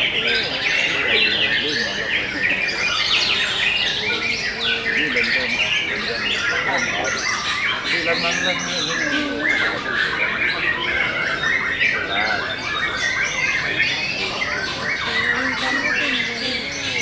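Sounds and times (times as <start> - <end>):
canaries singing: 0.0 - 17.0.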